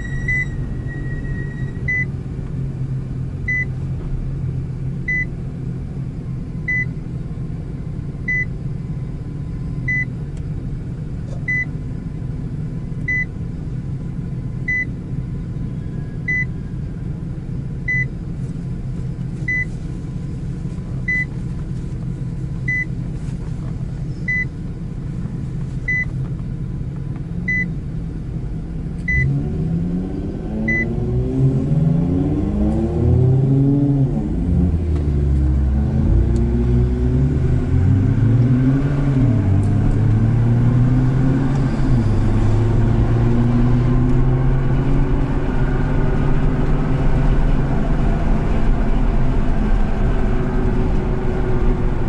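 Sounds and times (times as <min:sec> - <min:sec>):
short high electronic beep: 0:00.0 - 0:02.1
car engine idling: 0:00.0 - 0:29.2.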